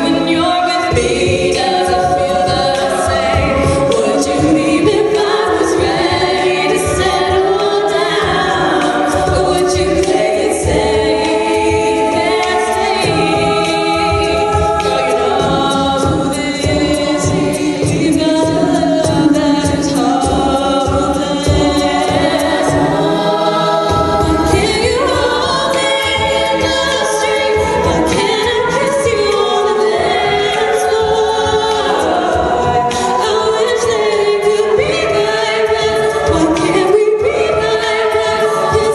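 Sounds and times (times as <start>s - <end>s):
steady beat: 0.0s - 38.9s
women singing a cappella: 0.0s - 38.9s.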